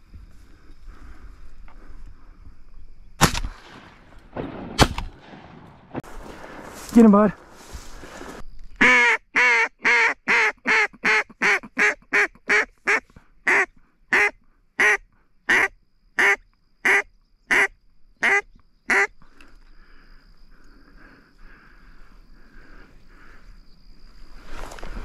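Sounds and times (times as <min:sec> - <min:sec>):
duck call quacks: 0:08.8 - 0:19.1.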